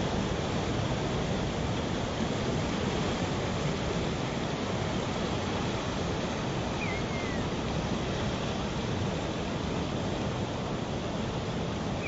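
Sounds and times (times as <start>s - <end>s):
river rushing over rapids: 0.1s - 12.0s
bird chirp: 6.8s - 7.4s.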